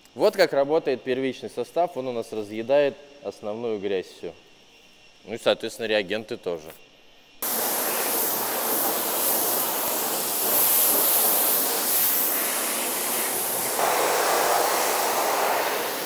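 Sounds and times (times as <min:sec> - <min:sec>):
pressure washer spray hissing: 0:07.4 - 0:16.0.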